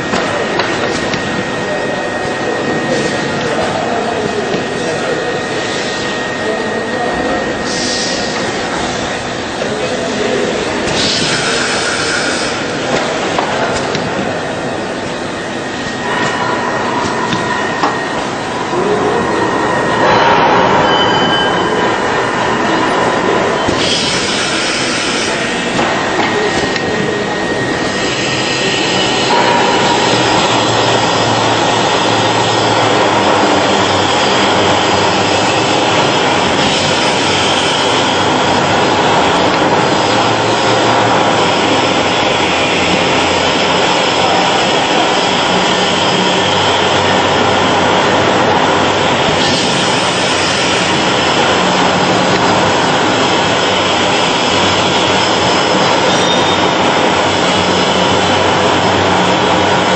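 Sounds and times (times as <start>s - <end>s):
assembly line machinery roar: 0.0s - 59.9s.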